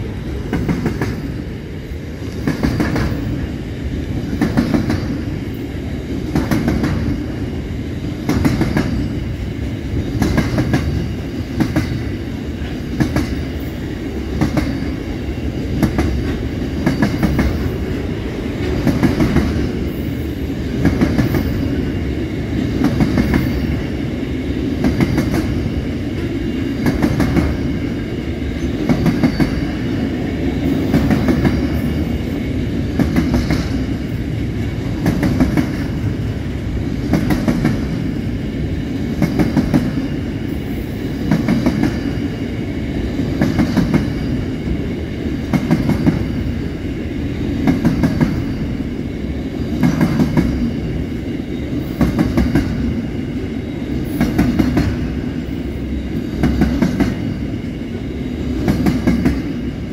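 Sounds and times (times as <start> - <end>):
train wheels rumbling on rail: 0.0 - 59.9
wheels clacking over rail joints: 10.0 - 21.8.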